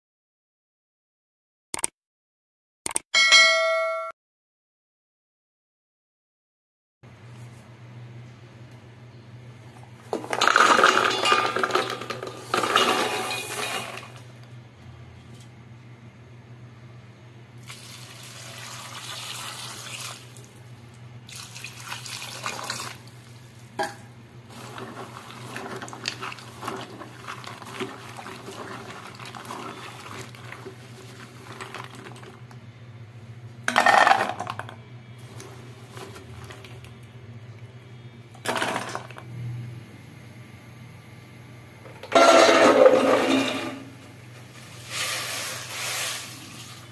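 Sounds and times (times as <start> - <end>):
water sloshing in a bowl: 21.3 - 23.7, 24.5 - 32.5.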